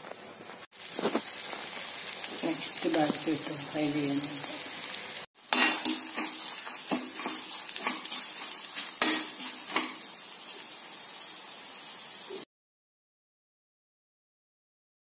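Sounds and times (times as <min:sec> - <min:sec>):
vegetables sizzling in hot oil: 0:00.0 - 0:12.5
steel spoon scraping a pan: 0:05.4 - 0:10.1.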